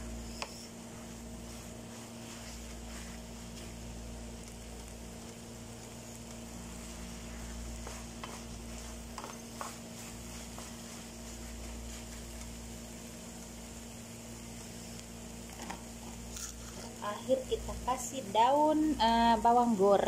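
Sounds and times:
noodles sizzling in a pan: 0.0s - 17.1s.

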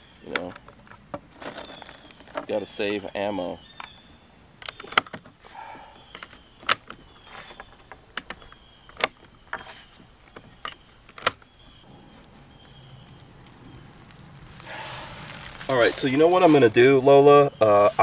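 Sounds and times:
rounds rattling: 0.3s - 4.0s.

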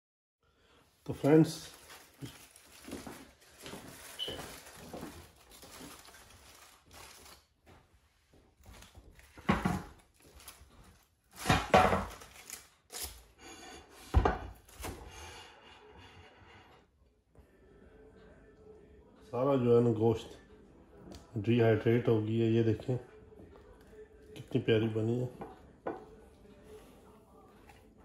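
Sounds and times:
aluminium foil crinkling: 1.1s - 7.6s, 8.6s - 13.3s.

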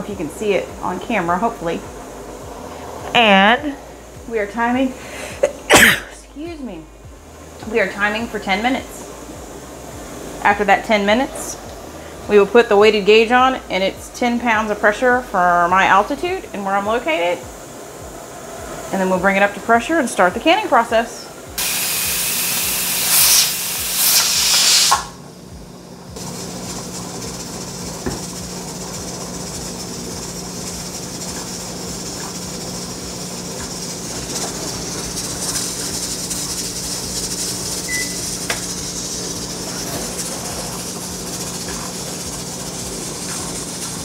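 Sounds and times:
low steady hum: 0.0s - 21.6s
pressure canner hissing steam: 0.0s - 44.0s.

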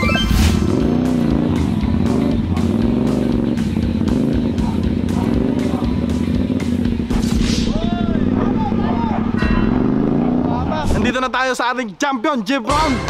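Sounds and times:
music with steady beat: 0.0s - 7.7s, 12.7s - 13.0s
motorcycles revving and accelerating: 0.0s - 11.0s.

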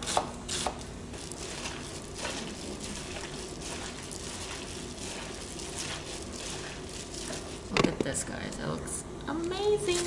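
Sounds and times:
gloved hand squishing meat: 0.0s - 7.8s.

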